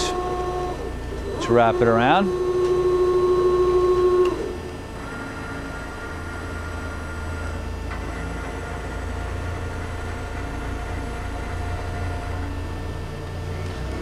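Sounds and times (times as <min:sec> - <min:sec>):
high drive whine: 0:00.0 - 0:14.0
lathe humming: 0:00.0 - 0:14.0
click: 0:04.2 - 0:04.4.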